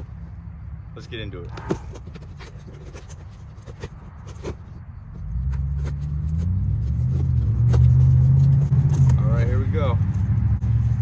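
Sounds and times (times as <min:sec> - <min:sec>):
cardboard box being opened: 0:01.5 - 0:04.8
light clicks and scrapes: 0:01.5 - 0:04.8
vehicle engine accelerating: 0:05.1 - 0:11.0.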